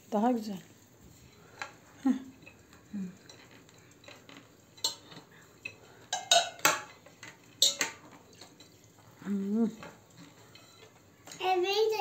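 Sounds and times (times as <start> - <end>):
plate clinking on metal tray: 3.3 - 5.3, 6.1 - 8.5.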